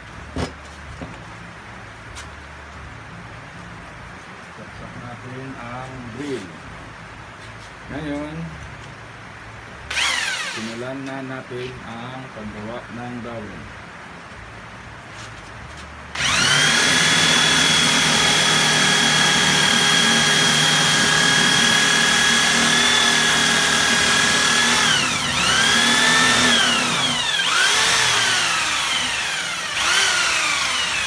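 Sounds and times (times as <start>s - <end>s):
electric drill whining: 9.9s - 10.8s, 16.2s - 31.0s.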